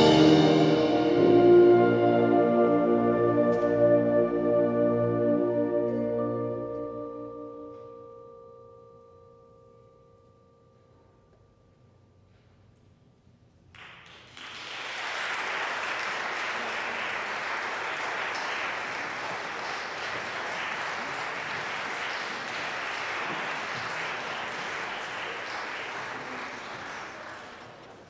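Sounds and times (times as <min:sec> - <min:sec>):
audience applauding: 0:13.8 - 0:28.0.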